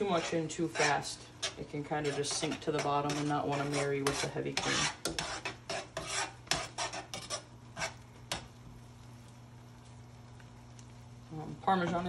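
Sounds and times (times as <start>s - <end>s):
tongs scraping a skillet: 0.0s - 8.6s.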